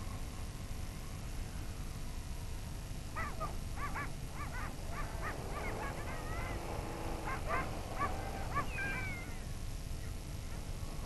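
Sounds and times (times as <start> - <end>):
seals yelping: 3.2 - 9.4.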